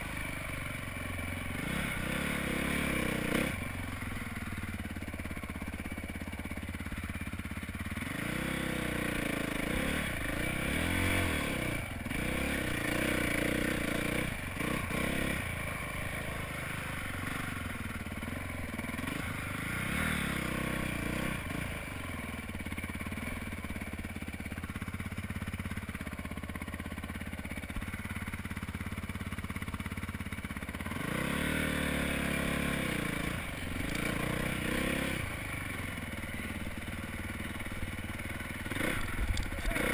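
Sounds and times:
dirt bike engine revving: 0:01.4 - 0:05.4, 0:07.8 - 0:24.1, 0:30.7 - 0:39.9.

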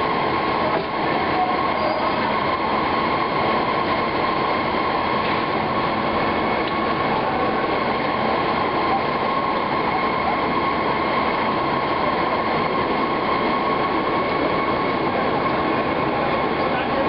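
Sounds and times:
factory machinery drone: 0:00.0 - 0:17.0
high machine whine: 0:00.0 - 0:17.0.

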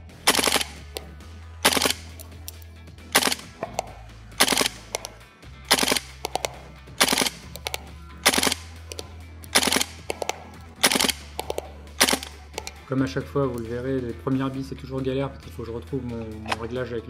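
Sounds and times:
airsoft rifle full-auto bursts: 0:00.0 - 0:12.9.

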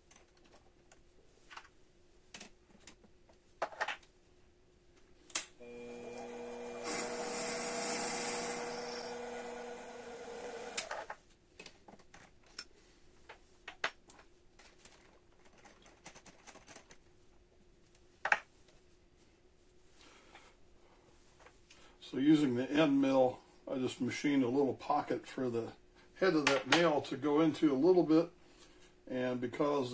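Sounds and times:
drill cutting wood hiss: 0:05.6 - 0:11.1
lathe motor humming: 0:05.6 - 0:11.1.

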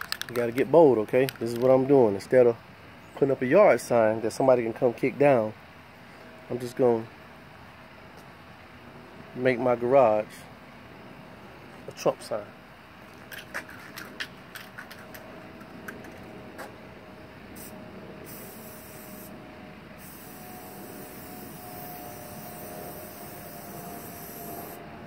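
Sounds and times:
spray paint can hissing: 0:17.6 - 0:19.4, 0:20.0 - 0:24.8.

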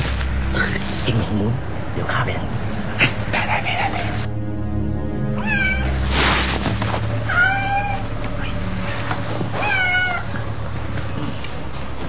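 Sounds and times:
cat meowing: 0:05.4 - 0:06.0, 0:07.3 - 0:08.5, 0:09.6 - 0:10.4
rustling: 0:05.8 - 0:12.0.

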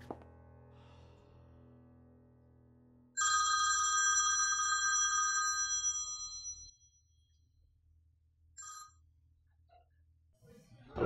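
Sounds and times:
mobile phone ringing: 0:03.2 - 0:06.8.

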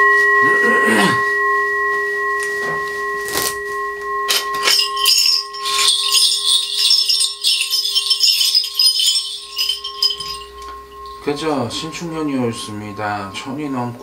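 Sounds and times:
brass bowl ringing: 0:00.0 - 0:14.0
brass bell rattle jingling: 0:04.3 - 0:11.3.

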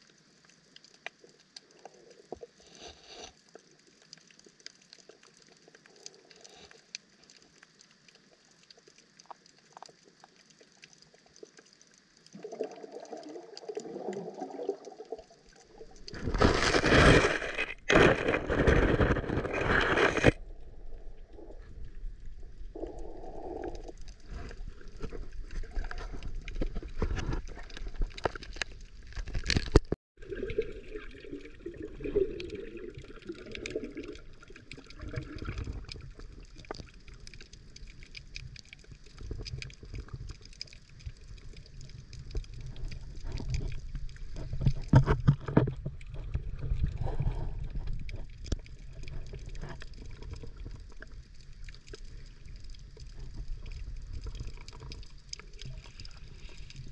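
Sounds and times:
water gurgling: 0:07.2 - 0:56.9
muffled underwater rumble: 0:15.7 - 0:29.9, 0:39.0 - 0:56.9
small clicks and knocks: 0:25.0 - 0:30.0.

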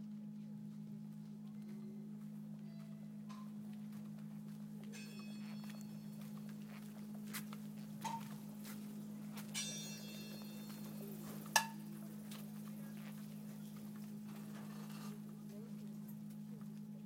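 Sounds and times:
steady low hum: 0:00.0 - 0:17.0
high ringing tone: 0:04.9 - 0:07.0, 0:09.3 - 0:12.0.

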